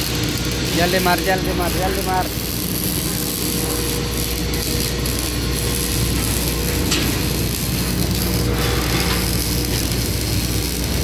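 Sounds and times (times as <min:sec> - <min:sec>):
arc welder crackling: 0:00.0 - 0:11.0
machinery drone: 0:00.0 - 0:11.0.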